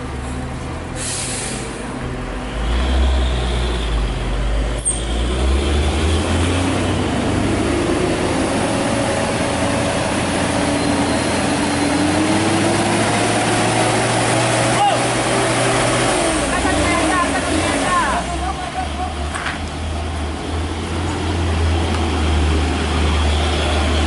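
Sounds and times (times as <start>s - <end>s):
diesel truck engine pulling hard: 0.0s - 24.0s
air brake hiss: 1.0s - 1.8s.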